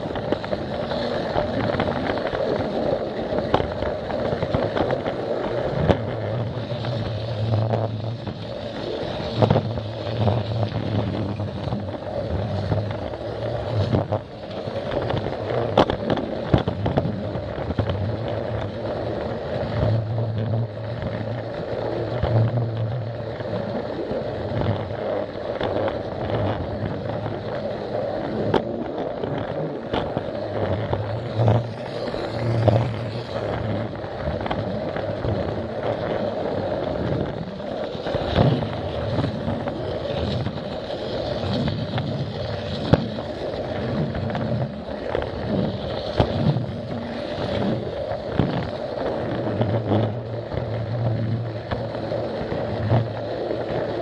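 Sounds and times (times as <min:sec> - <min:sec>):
wheels rattling on track: 0:23.4 - 0:54.0.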